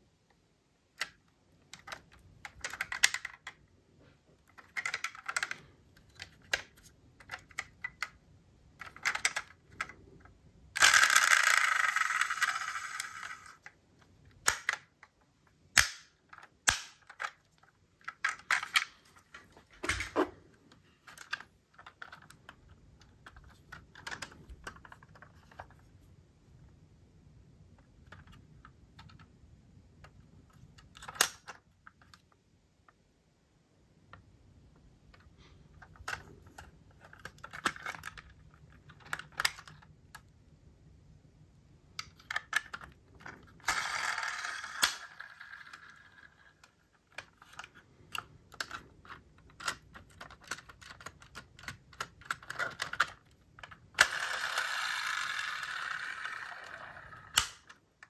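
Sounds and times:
metal model cars clicking and rattling: 10.8 - 13.7, 42.0 - 57.8.

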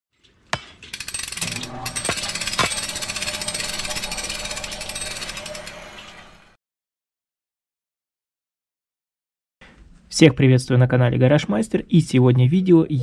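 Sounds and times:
power tool hammering: 0.6 - 6.4.

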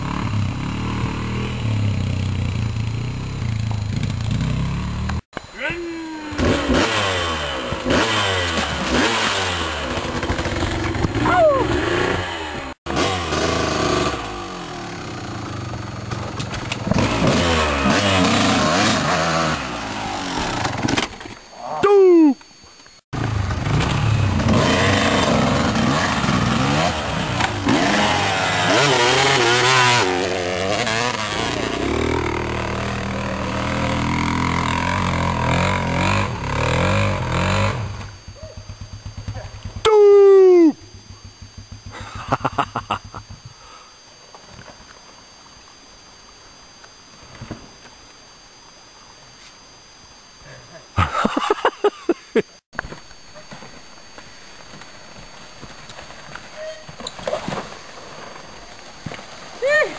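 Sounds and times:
dirt bike engines revving: 0.0 - 20.9, 23.2 - 43.5.

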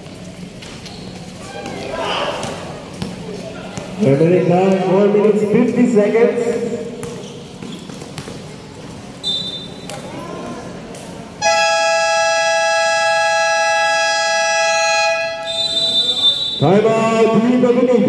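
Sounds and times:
game horn blast: 11.4 - 16.0
referee's whistle blast: 11.4 - 16.8.

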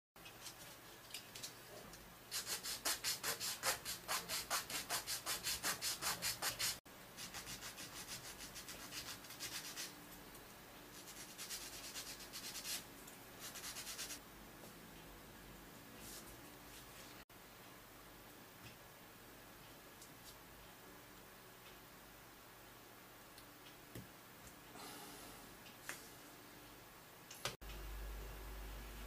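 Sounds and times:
wood block sanded by hand: 2.4 - 9.9.

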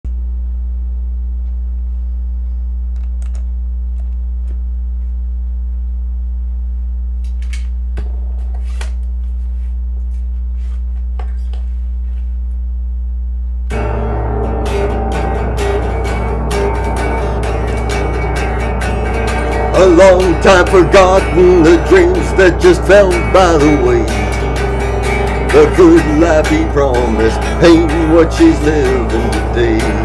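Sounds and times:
steady low hum: 0.0 - 30.0
country music with guitar: 13.7 - 30.0.

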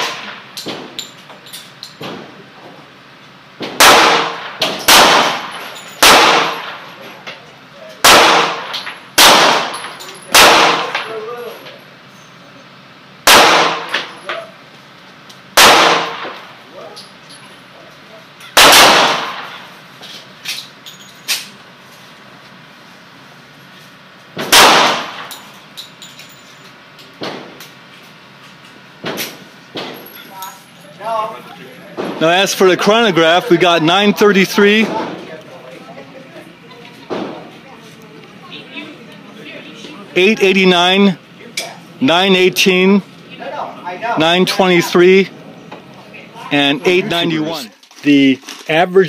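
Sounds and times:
pistol shots: 3.8 - 6.8, 8.0 - 11.1, 13.2 - 14.1, 15.6 - 16.4, 18.6 - 19.6, 24.4 - 25.4.

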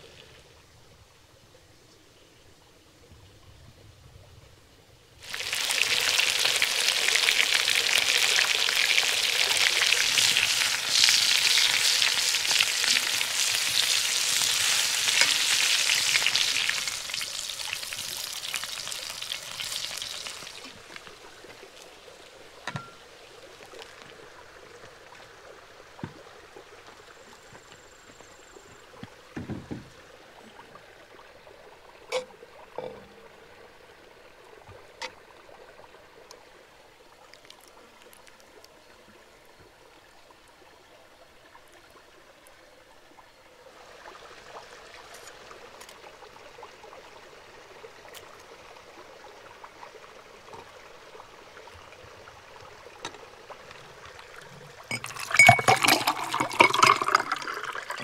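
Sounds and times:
low steady background noise: 0.0 - 58.0
clinks and knocks: 22.7 - 23.0, 54.9 - 57.1
liquid being poured: 53.5 - 58.0.

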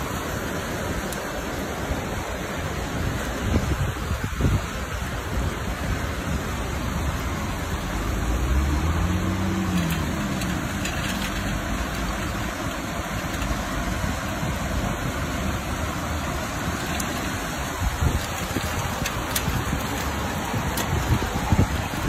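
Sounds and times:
rain falling on street: 0.0 - 22.0
traffic on wet road: 0.0 - 22.0
passing vehicle engine hum: 7.2 - 14.2.

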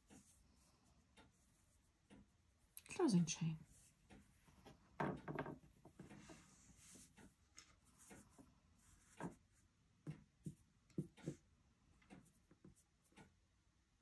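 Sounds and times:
crochet hook and yarn rubbing: 0.0 - 0.7, 6.0 - 7.3, 7.9 - 9.6.

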